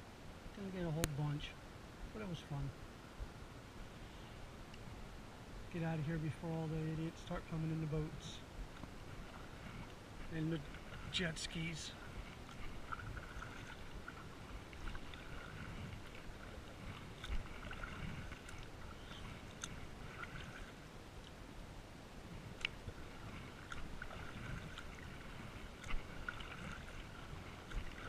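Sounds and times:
paddle splashing in water: 0:07.2 - 0:21.5, 0:22.3 - 0:28.0.

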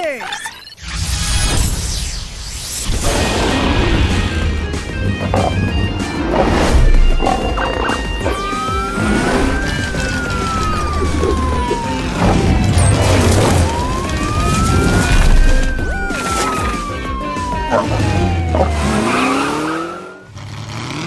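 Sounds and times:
background music: 0:03.0 - 0:20.2
vehicle engine rumbling: 0:03.4 - 0:19.8
cartoon police siren wailing: 0:07.0 - 0:20.3.

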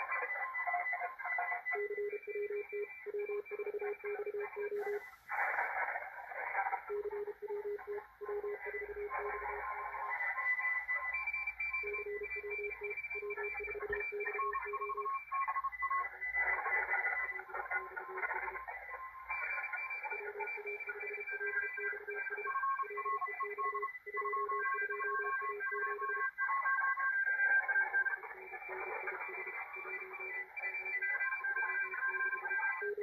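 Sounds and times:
overlapping morse code beeps: 0:00.0 - 0:05.3, 0:06.5 - 0:33.0
radio band hiss: 0:04.7 - 0:10.4.

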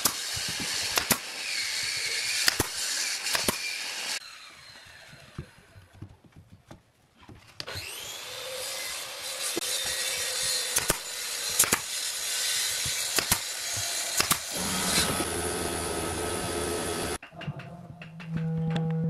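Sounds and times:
nail gun firing: 0:00.0 - 0:04.0, 0:09.7 - 0:15.3.

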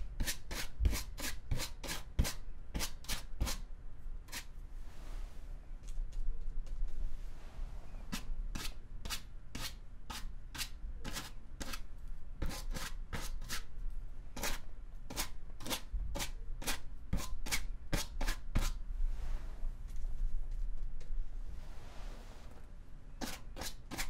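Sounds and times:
paintbrush scratching on canvas: 0:04.3 - 0:04.6.

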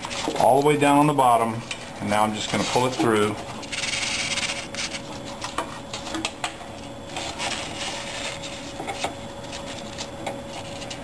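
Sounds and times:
cable rubbing and rustling: 0:00.0 - 0:01.1, 0:02.2 - 0:06.2, 0:07.1 - 0:11.0.

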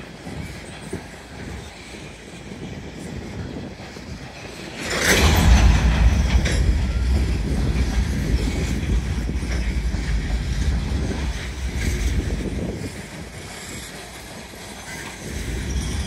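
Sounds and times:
train wheel clatter: 0:00.0 - 0:16.0
train cars rumbling past: 0:00.8 - 0:16.0.

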